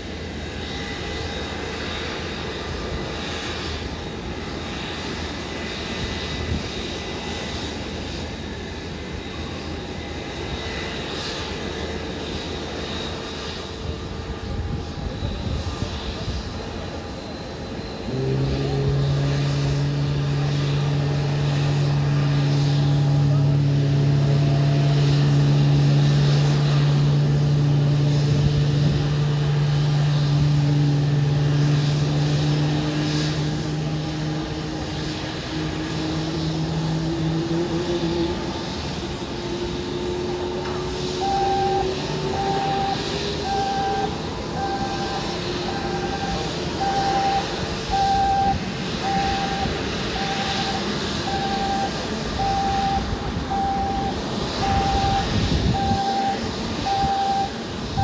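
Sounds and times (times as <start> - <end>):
jet engines running: 0.0 - 58.0
short high beeps: 42.4 - 57.5.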